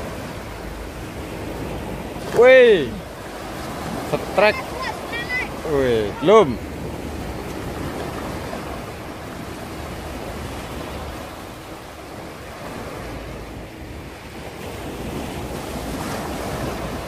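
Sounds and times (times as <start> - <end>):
waves washing up a beach: 0.0 - 17.0.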